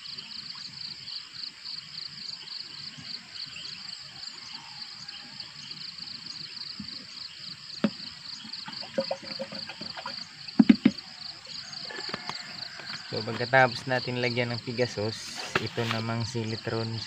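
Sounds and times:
insects chirping: 0:00.0 - 0:17.0
plastic containers knocking: 0:07.8 - 0:08.0, 0:08.6 - 0:11.1.

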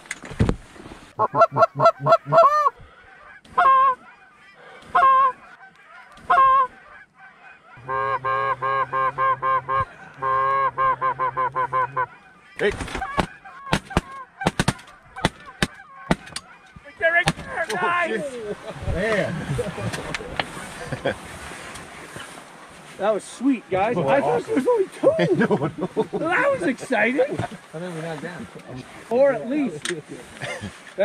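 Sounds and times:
geese honking: 0:01.2 - 0:21.0.

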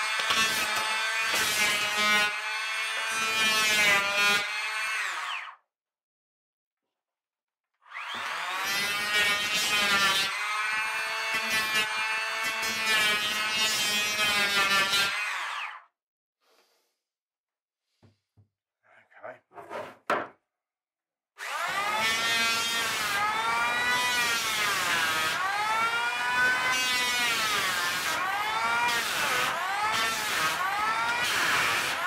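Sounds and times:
electric planer motor whine: 0:07.9 - 0:09.1.

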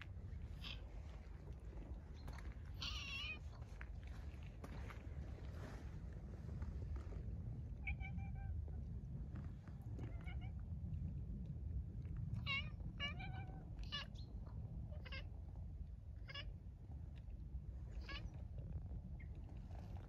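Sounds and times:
steady low rumble: 0:00.0 - 0:20.0
cat meowing: 0:00.6 - 0:00.9, 0:02.8 - 0:03.4, 0:07.8 - 0:08.6, 0:12.4 - 0:14.2, 0:15.0 - 0:15.3.

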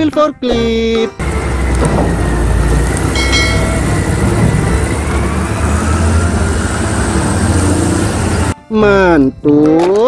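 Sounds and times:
diesel engine rumbling under load: 0:01.2 - 0:08.6.

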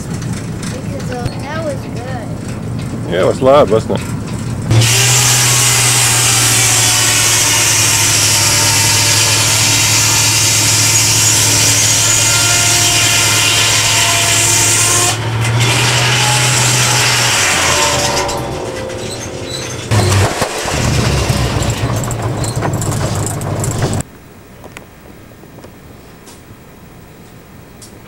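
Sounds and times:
low motor hum: 0:00.0 - 0:28.0
saw cutting through log: 0:04.7 - 0:23.0.

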